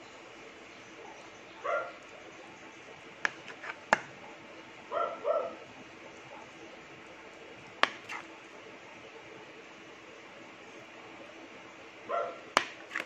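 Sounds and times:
small dog barking: 1.0s - 2.0s, 4.2s - 5.6s, 12.1s - 12.4s.

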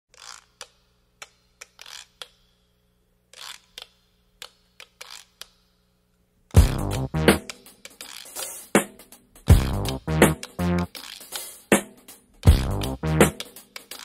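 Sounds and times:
electronic music with drum beat: 6.6s - 14.0s.

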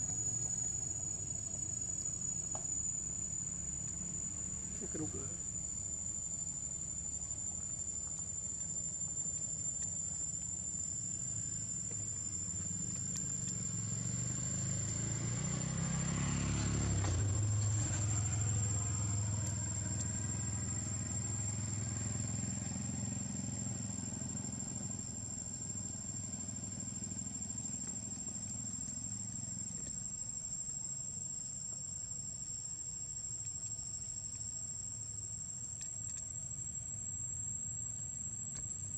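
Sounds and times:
high-pitched insect drone: 0.0s - 38.9s
vehicle engine passing by: 13.6s - 24.4s.

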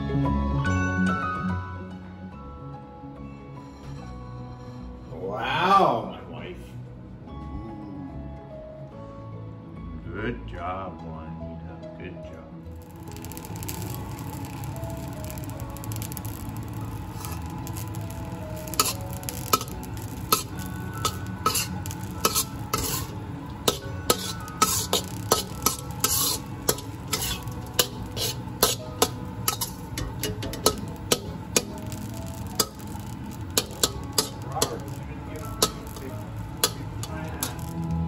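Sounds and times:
steady sizzle: 12.7s - 38.0s
metal spatula scraping a wok: 12.9s - 37.9s.

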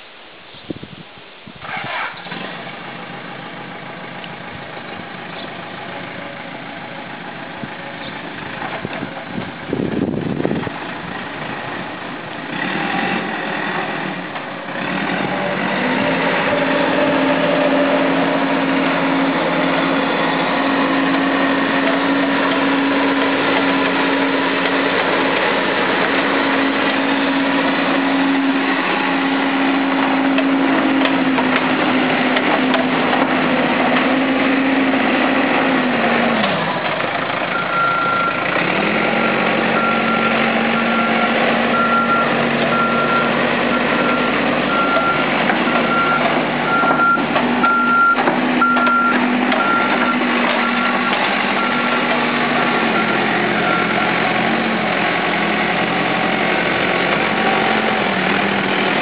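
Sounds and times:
diesel engine idling: 1.6s - 59.0s.

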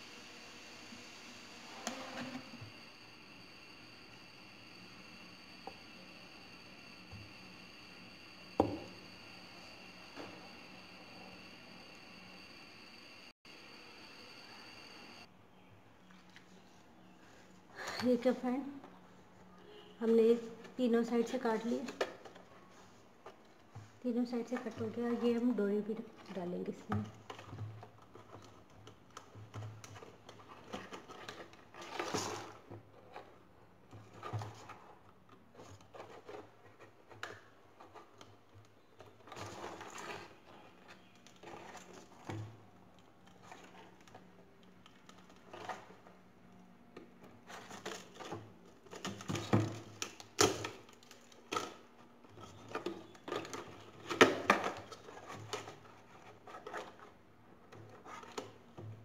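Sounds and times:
faint steady hum: 0.0s - 20.8s.

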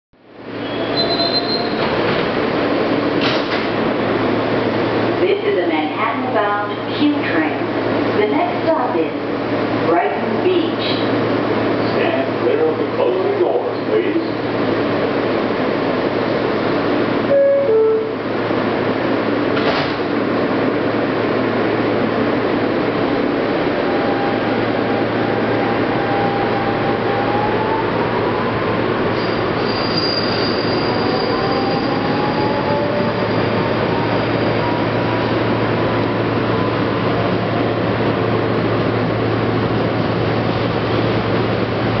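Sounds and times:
train wheels rumbling on rail: 0.4s - 42.0s
high wheel squeal: 0.6s - 1.9s, 29.1s - 34.6s.

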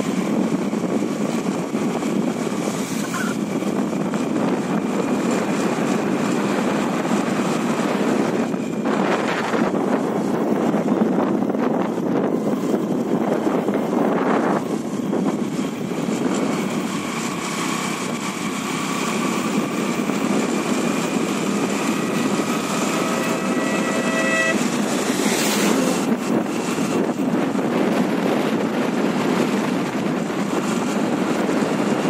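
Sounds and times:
vehicle road noise: 0.0s - 32.0s
wind rushing over microphone: 0.0s - 32.0s
short pitched tone: 3.0s - 3.4s, 22.0s - 24.8s.

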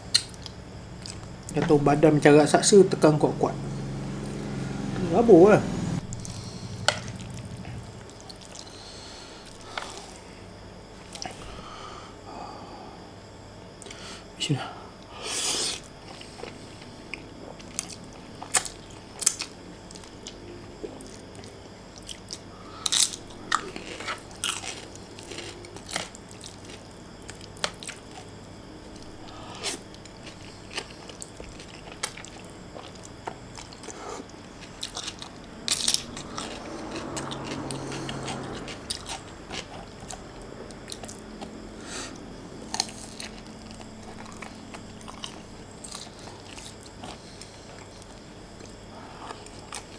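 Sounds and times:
slurping and chewing noodles: 28.9s - 40.2s.

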